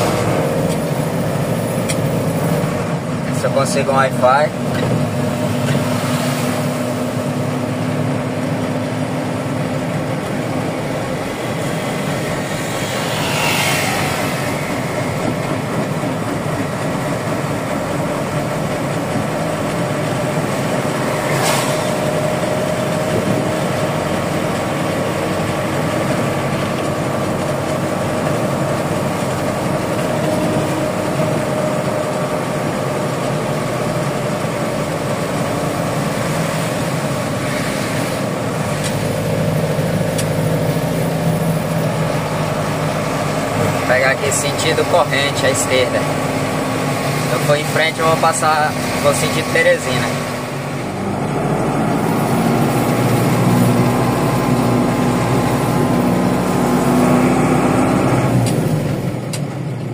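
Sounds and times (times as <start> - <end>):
truck diesel engine running: 0.0 - 59.9
vehicle swishing past: 5.3 - 7.4, 11.3 - 16.0, 20.9 - 23.5.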